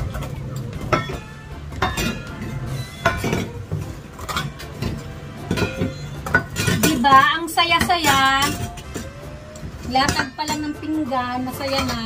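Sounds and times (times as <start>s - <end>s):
plates and fork clinking: 0.0s - 9.1s.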